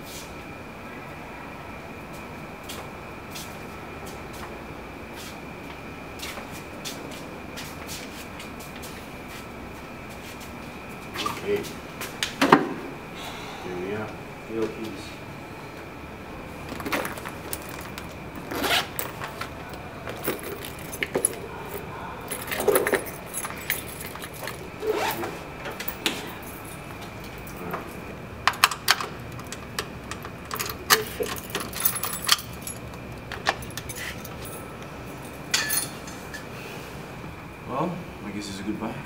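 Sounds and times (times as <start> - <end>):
handbag rustling and clicking: 16.6 - 26.9
keys jangling: 16.7 - 36.3.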